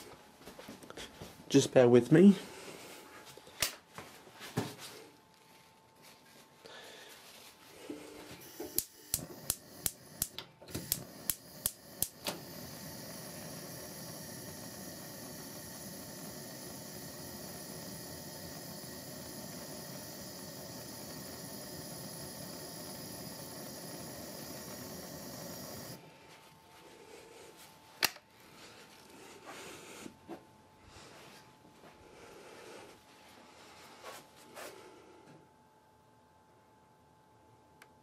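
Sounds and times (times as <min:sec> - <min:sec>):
gas burner hissing: 0:06.7 - 0:26.3, 0:27.0 - 0:30.2
gas hob igniter clicking: 0:08.4 - 0:26.0, 0:28.0 - 0:28.2.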